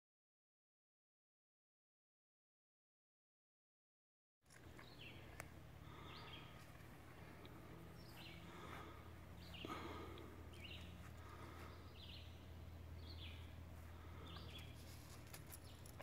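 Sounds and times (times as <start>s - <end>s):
faint birds chirping: 4.5s - 16.0s
low steady hum: 4.5s - 16.0s.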